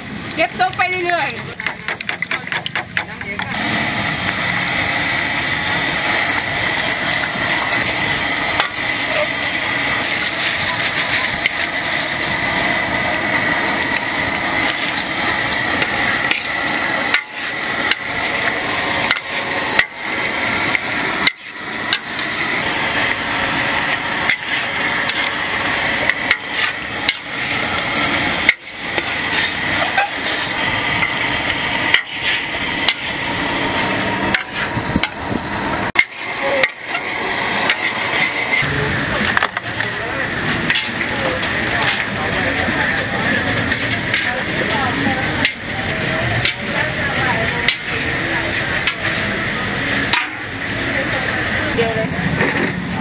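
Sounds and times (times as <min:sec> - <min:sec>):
frying hiss: 0:00.0 - 0:52.4
metal spatula clanking on a wok: 0:45.3 - 0:45.7, 0:47.4 - 0:48.0, 0:50.0 - 0:50.5.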